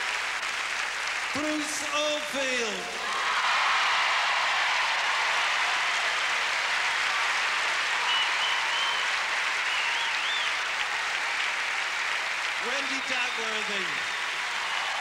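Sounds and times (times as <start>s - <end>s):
audience applauding: 0.0s - 15.0s
high whistles: 8.0s - 10.7s.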